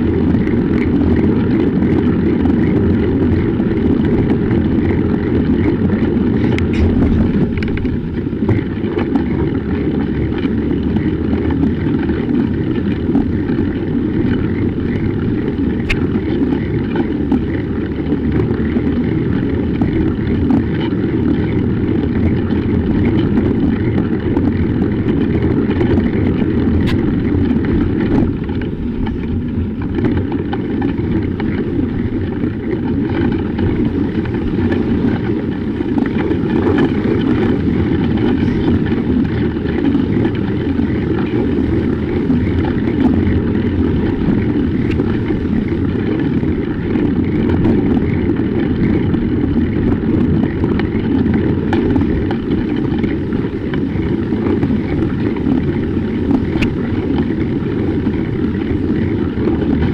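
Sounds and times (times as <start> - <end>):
tyres rolling on snow: 0.0 - 59.9
wind on microphone: 0.0 - 59.9.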